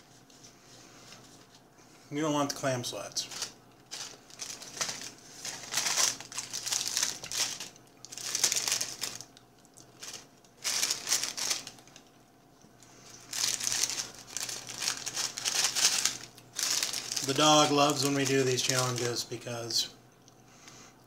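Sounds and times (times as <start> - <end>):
paper wrapper crinkling: 3.2 - 12.1, 13.0 - 19.7.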